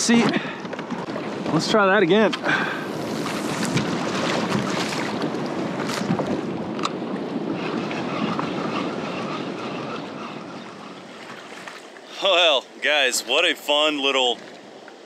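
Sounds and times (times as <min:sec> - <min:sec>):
wind buffeting microphone: 0:00.0 - 0:11.8
sea waves: 0:00.0 - 0:15.0.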